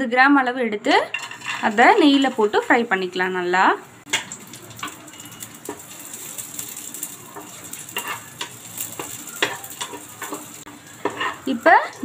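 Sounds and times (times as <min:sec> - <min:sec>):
light frying sizzle: 0:01.0 - 0:12.0
spatula scraping and tapping pan: 0:01.1 - 0:02.7, 0:04.0 - 0:12.0.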